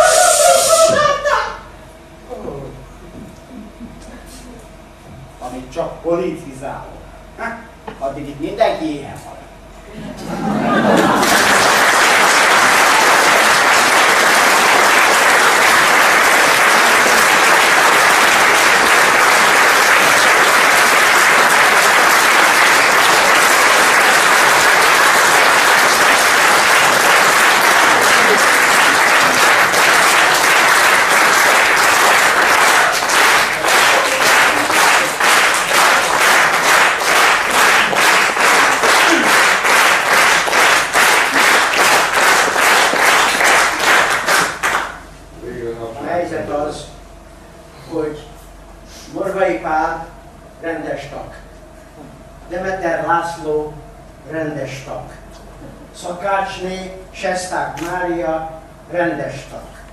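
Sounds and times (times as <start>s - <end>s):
audience applauding: 10.4s - 45.1s
rhythmic clapping in unison: 10.5s - 45.1s.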